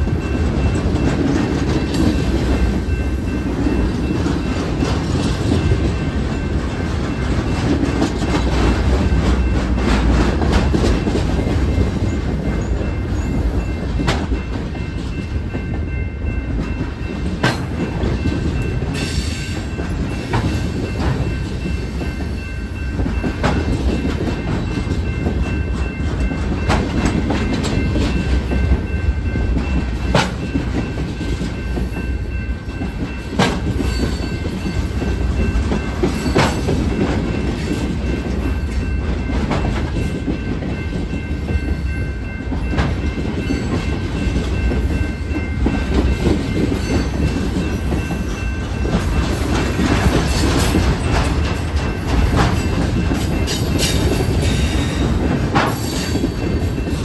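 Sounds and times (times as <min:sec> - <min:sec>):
wheels clicking over rail joints: 0:32.8 - 0:57.0.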